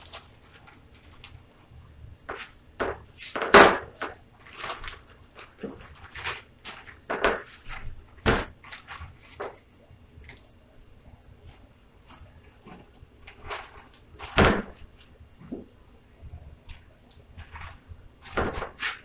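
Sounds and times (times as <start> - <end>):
plastic bag crinkling: 0.0 - 1.6, 3.1 - 8.0.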